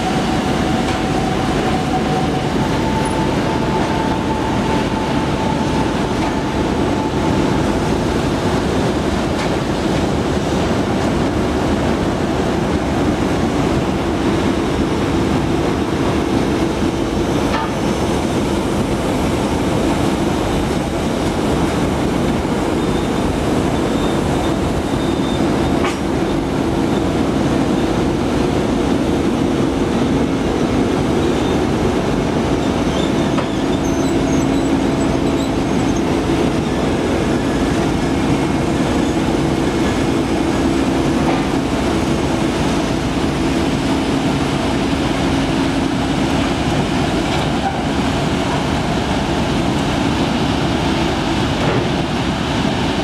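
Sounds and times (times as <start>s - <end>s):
diesel locomotive engines running: 0.0s - 53.0s
wheels rumbling on rails: 0.0s - 53.0s.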